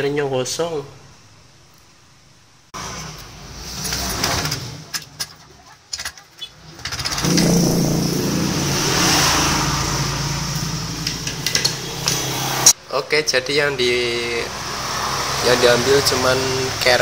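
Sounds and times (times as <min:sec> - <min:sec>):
engine running: 0:07.0 - 0:12.7.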